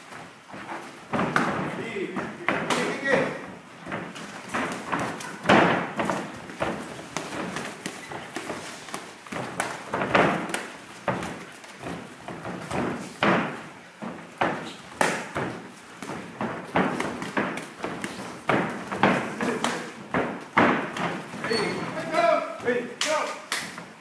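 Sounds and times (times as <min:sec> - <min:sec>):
feet stamping on ring canvas: 0:00.0 - 0:24.0
gloved punches and kicks landing: 0:04.0 - 0:21.3.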